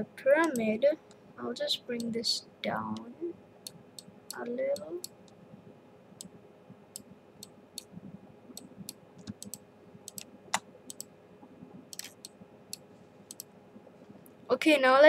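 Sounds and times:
faint steady hum: 0.0 - 15.0
computer mouse clicking: 8.6 - 11.1, 11.9 - 13.5.

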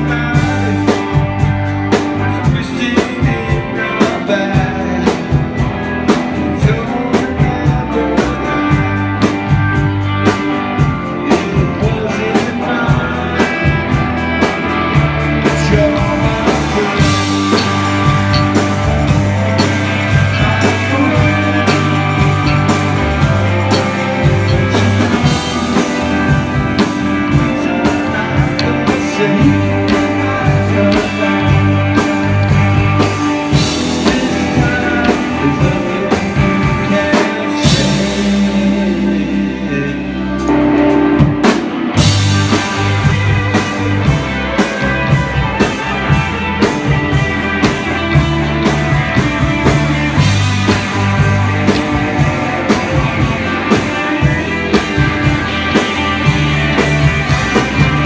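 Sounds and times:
man singing: 0.0 - 9.3, 11.2 - 14.1, 15.4 - 40.9, 49.4 - 55.8
live rock band playing: 0.0 - 58.0.

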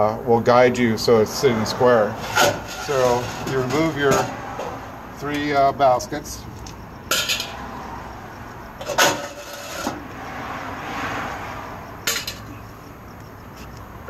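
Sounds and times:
metal strainer baskets clanking: 2.2 - 4.7.

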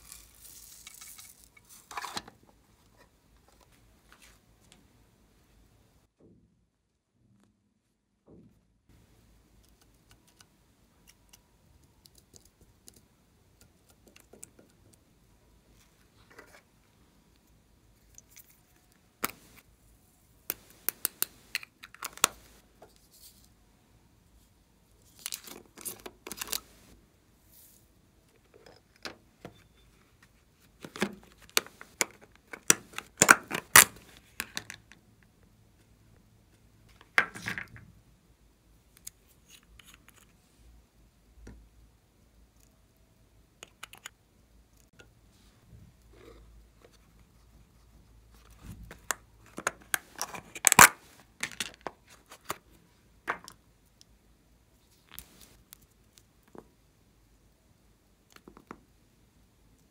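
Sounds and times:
crinkly packaging rustling: 0.0 - 2.4.

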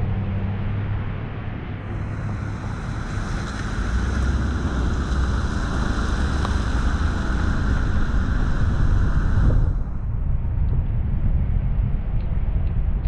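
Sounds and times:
car road noise on wet pavement: 0.0 - 10.0
wind rushing over microphone: 0.0 - 13.0.

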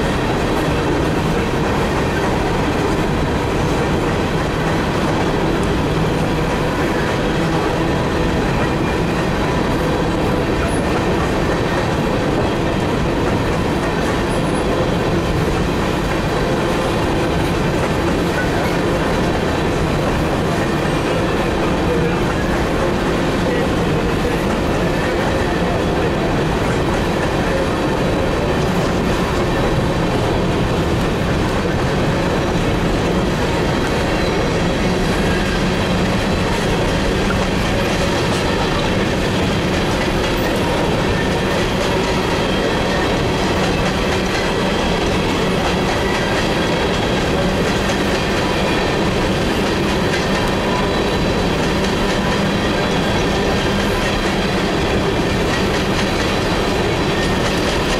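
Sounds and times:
train wheels rumbling on rails: 0.0 - 57.9.

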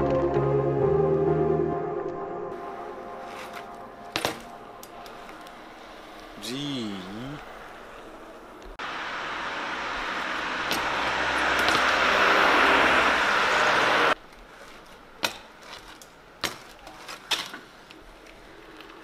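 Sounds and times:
rushing rolling noise: 2.5 - 14.2
bike tyres and frame clacking: 3.2 - 6.6, 9.4 - 19.0.

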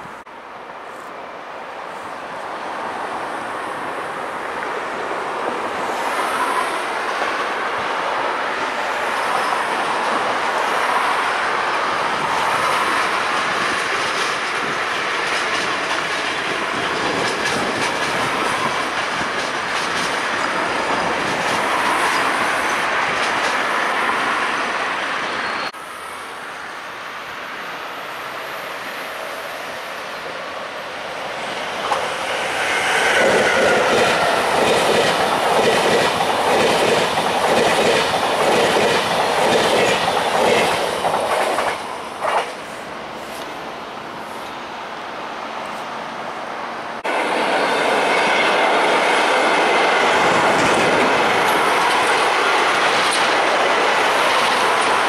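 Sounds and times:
passenger train rolling past: 0.0 - 55.0
approaching train rumble: 2.0 - 44.7, 46.9 - 55.0
wheels clacking over rail joints: 12.9 - 24.2, 31.6 - 42.8, 47.4 - 55.0.

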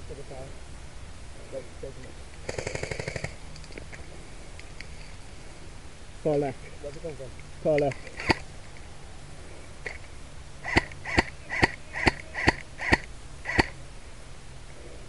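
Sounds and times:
airsoft rifle shots: 2.4 - 3.4, 8.2 - 8.4, 10.6 - 13.8.

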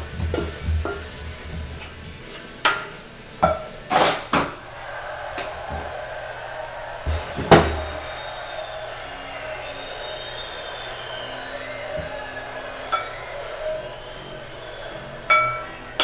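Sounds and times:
pan and utensil clattering: 0.0 - 4.6.

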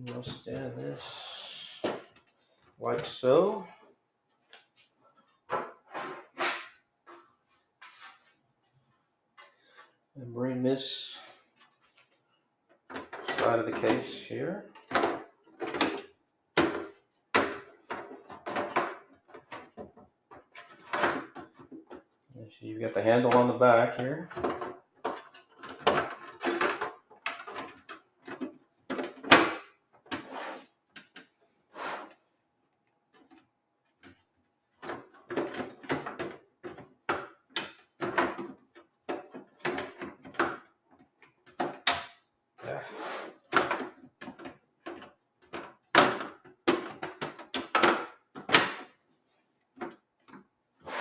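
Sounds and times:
computer case panel scraping: 30.2 - 30.8, 50.8 - 51.0.

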